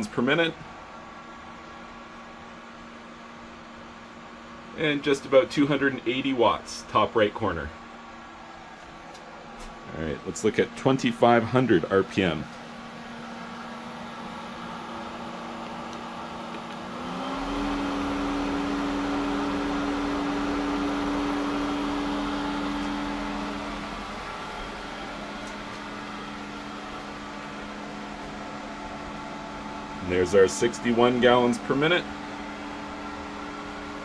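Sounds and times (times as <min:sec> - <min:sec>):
pool pump motor humming: 0:00.0 - 0:34.0.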